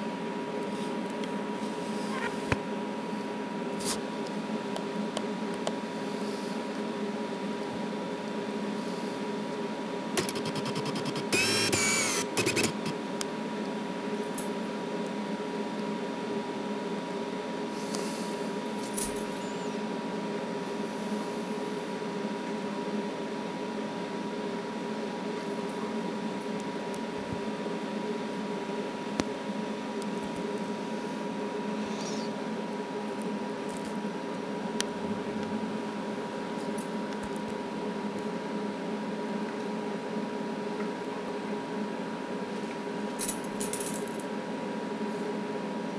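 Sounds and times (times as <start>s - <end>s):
background hum and hiss: 0.0s - 45.9s
dog whining in sleep: 1.9s - 2.5s, 19.2s - 19.9s, 31.8s - 32.4s.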